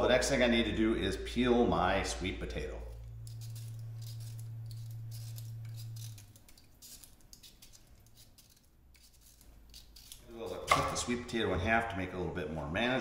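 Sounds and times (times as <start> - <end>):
low steady hum: 0.0 - 13.0
vegetable peeler scraping: 2.8 - 11.2.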